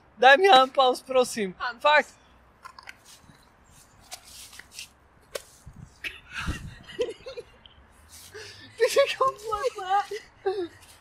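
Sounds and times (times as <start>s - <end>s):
person rustling on bench: 2.7s - 5.9s.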